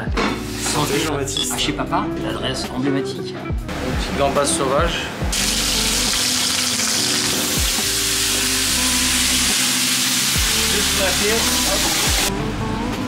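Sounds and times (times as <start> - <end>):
prawns sizzling in a frying pan: 5.4 - 12.3.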